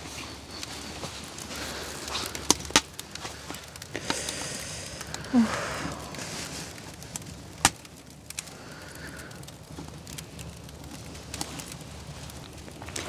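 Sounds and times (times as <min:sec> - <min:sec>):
campfire crackling: 0:00.0 - 0:13.0
loud sharp wood crack: 0:02.2 - 0:06.3, 0:07.0 - 0:11.8.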